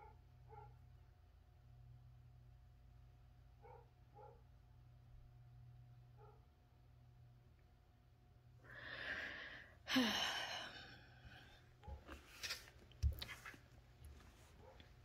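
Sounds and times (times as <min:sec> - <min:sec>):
person breathing out: 0:08.6 - 0:11.6
person sighing: 0:08.7 - 0:11.6.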